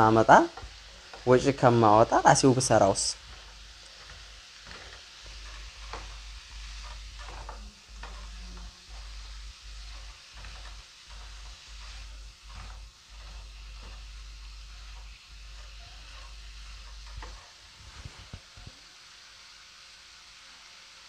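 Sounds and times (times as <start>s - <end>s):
faint steady hiss: 0.0s - 21.0s
paintbrush scraping on wall: 3.2s - 18.4s.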